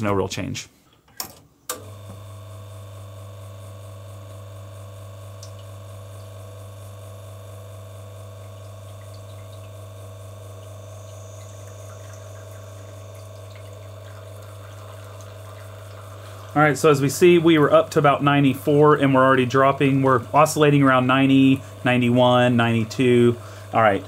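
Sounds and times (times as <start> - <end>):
espresso machine pump humming: 1.7 - 24.0
water flowing: 8.2 - 24.0.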